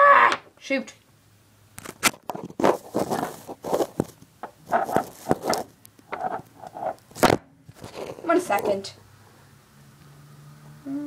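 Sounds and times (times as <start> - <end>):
rustling and scraping handling noise: 1.8 - 8.9.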